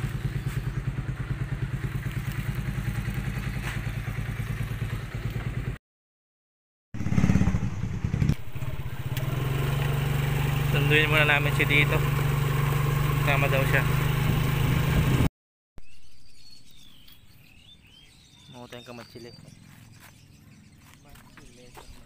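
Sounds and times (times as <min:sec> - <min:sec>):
motorcycle engine idling: 0:00.0 - 0:05.8, 0:07.0 - 0:15.3
motorcycle running under way: 0:00.0 - 0:05.8, 0:07.0 - 0:15.3.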